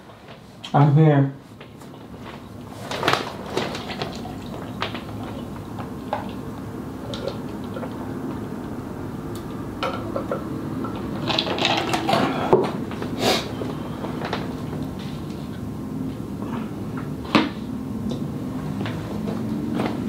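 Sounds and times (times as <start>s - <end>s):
person drinking and swallowing: 3.8s - 8.1s.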